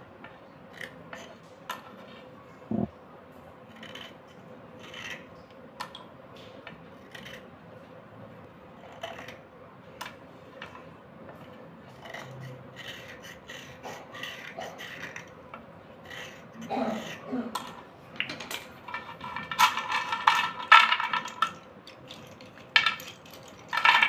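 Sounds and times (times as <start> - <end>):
slate pencil scraping: 3.7 - 5.3, 11.4 - 15.4, 16.0 - 17.3.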